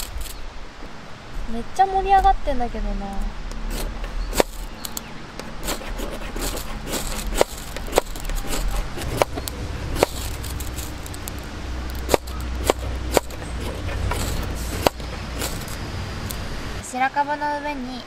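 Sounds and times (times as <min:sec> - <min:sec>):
fire starter rod scraping: 0:03.6 - 0:15.8.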